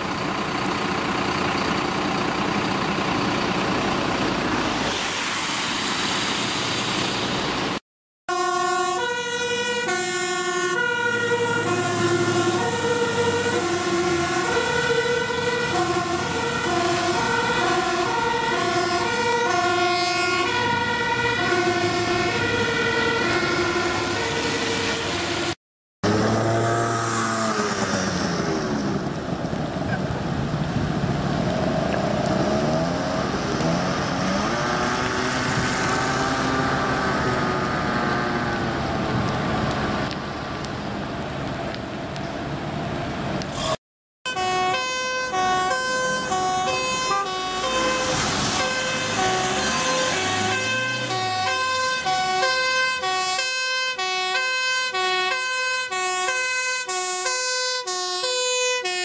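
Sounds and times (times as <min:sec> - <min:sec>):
two-tone siren: 0:08.3 - 0:25.6, 0:43.6 - 0:59.0
fire engine sirens wailing: 0:08.3 - 0:59.0.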